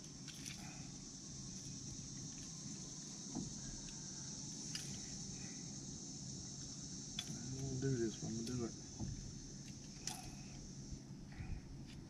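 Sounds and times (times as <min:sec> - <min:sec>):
insects droning: 0:00.0 - 0:12.0.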